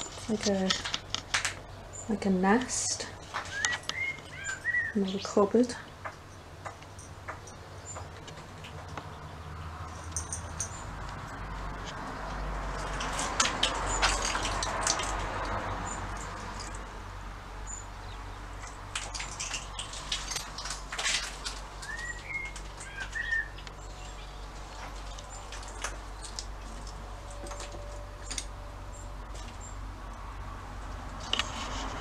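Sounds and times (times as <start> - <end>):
sharp clicks and light knocks: 0.0 - 1.7, 5.9 - 9.2, 9.8 - 16.9, 18.6 - 28.6
bird chirps: 3.4 - 5.4, 21.8 - 25.5.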